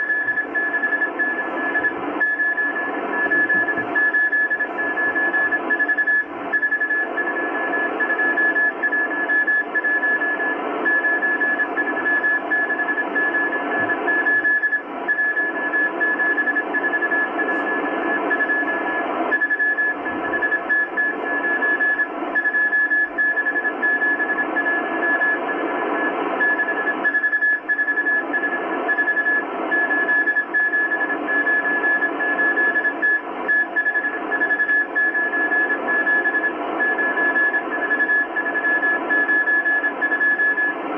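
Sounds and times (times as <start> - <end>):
morse code beeps: 0.0 - 40.8
radio band hiss: 15.8 - 19.3.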